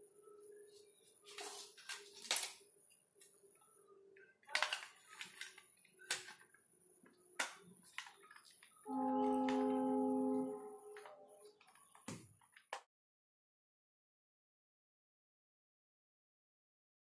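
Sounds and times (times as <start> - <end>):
steady humming tone: 8.9 - 11.5.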